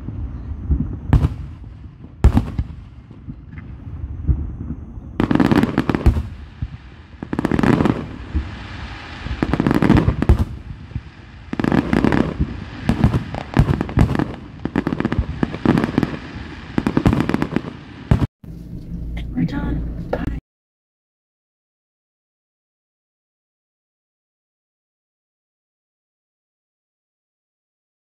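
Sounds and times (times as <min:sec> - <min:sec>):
fireworks bursting with crackling: 0:00.0 - 0:18.3.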